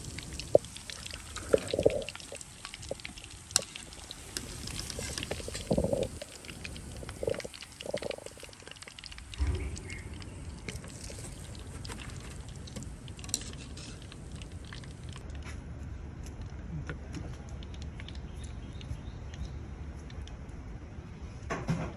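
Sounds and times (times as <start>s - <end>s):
frying oil sizzling: 0.0s - 15.2s.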